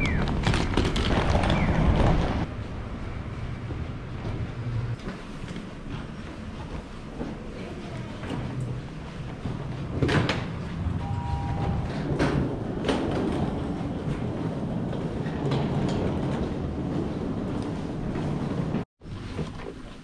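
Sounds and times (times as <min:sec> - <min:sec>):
wheels clacking over floor joins: 0:00.0 - 0:02.5
suitcase wheels rumbling: 0:00.0 - 0:19.9
two-tone beep: 0:11.0 - 0:12.1.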